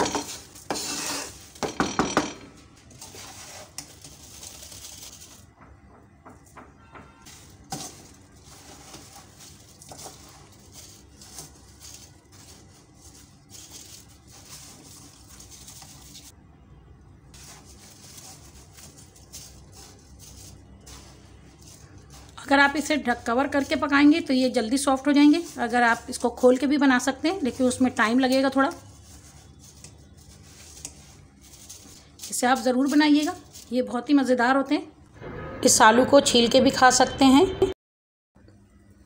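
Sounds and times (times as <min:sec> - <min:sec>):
spatula scraping salt in metal pan: 0:00.3 - 0:01.5, 0:03.0 - 0:04.7, 0:07.3 - 0:16.3, 0:27.3 - 0:33.8
skimmer scooping salt and potatoes: 0:02.8 - 0:05.5, 0:07.3 - 0:16.4, 0:17.4 - 0:34.0.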